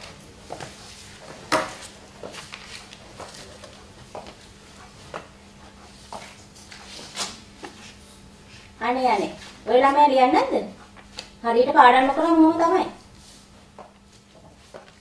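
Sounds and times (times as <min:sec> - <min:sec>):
footsteps on hard floor: 0:00.0 - 0:08.0, 0:13.2 - 0:15.0
steady low hum: 0:00.0 - 0:15.0.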